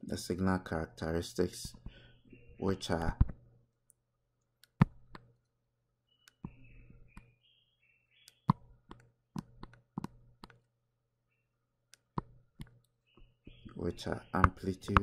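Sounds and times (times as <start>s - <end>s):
mouse clicks: 4.6s - 5.4s, 6.2s - 7.3s, 8.2s - 10.7s, 11.9s - 13.7s, 14.3s - 15.0s.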